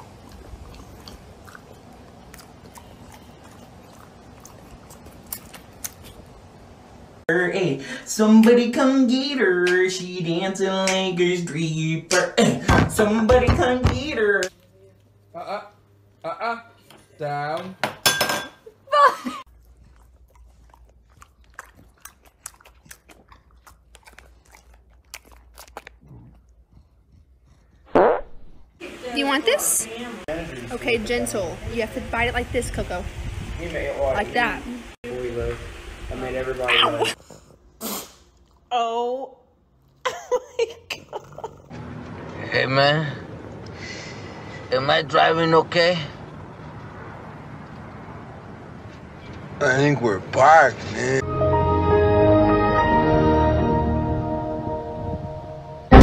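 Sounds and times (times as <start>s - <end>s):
dog chewing dry kibble: 19.7s - 27.8s.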